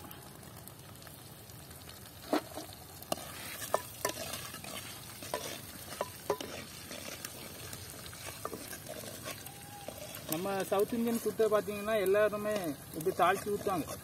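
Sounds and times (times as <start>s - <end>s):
spices sizzling in hot oil: 0.0s - 14.0s.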